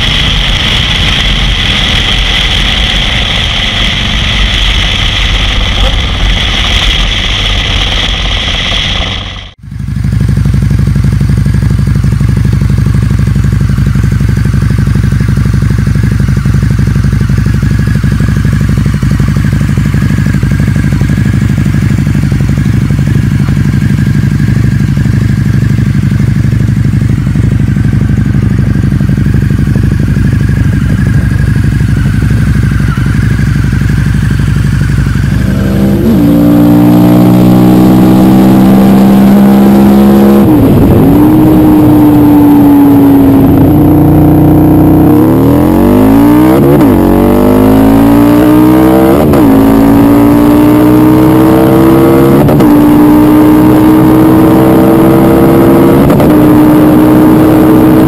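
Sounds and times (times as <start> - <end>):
motorcycle engine idling: 0.0 - 36.0
motorcycle engine accelerating: 0.0 - 58.0.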